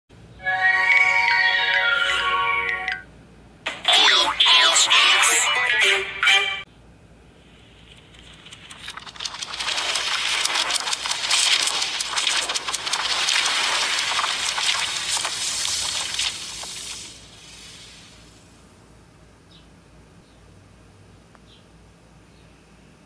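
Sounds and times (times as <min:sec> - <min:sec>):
pages flipping rapidly: 0:07.5 - 0:18.1.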